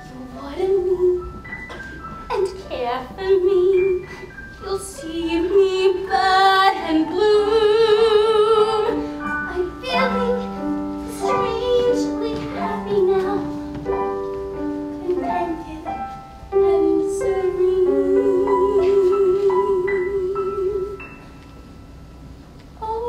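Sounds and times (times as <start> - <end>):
young woman singing ballad: 4.6 - 13.6, 15.0 - 21.0.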